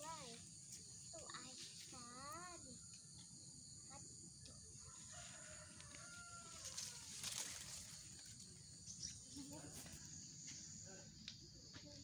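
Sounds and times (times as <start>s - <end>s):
high drone of insects: 0.0s - 12.0s
rooster crowing faintly: 4.6s - 7.6s.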